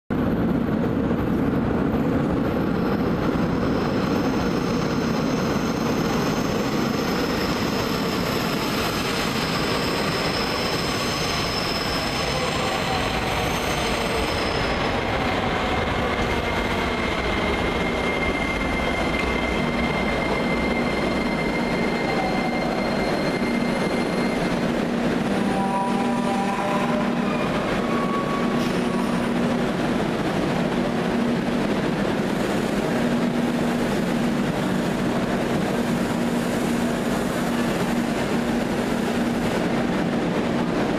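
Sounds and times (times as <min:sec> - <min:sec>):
train wheels rumbling on rail: 0:00.1 - 0:40.9
high wheel squeal: 0:03.8 - 0:29.5.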